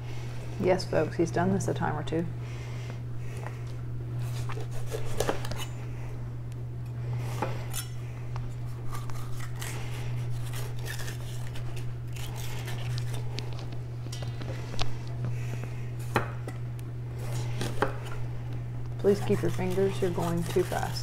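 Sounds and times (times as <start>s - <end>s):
steady low hum: 0.0s - 21.0s
knife chopping on cutting board: 4.6s - 5.6s
blade scrapes: 8.8s - 13.2s, 19.0s - 21.0s.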